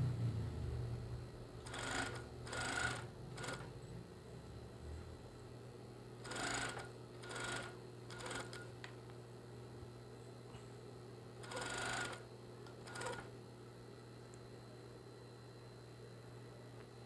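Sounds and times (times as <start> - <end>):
low motor hum: 0.0 - 5.6
sewing machine stitching: 1.6 - 3.7, 6.2 - 8.6, 11.4 - 13.3.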